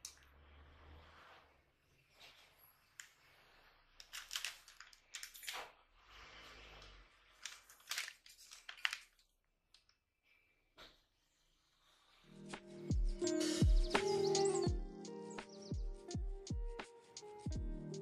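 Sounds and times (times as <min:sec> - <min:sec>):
plastic wrapper crinkling: 0:04.0 - 0:05.7, 0:07.3 - 0:09.4
paper bag rustling: 0:07.4 - 0:09.2.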